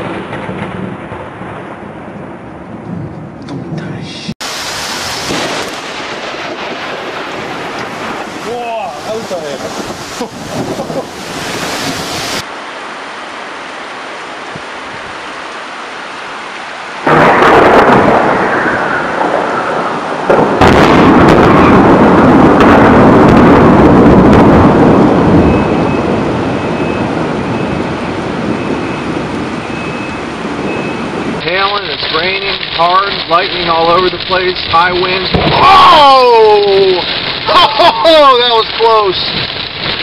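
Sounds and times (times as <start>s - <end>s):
thunder rumbling: 0.0s - 12.5s, 16.3s - 40.0s
heavy rain hiss: 3.9s - 23.8s, 31.2s - 40.0s.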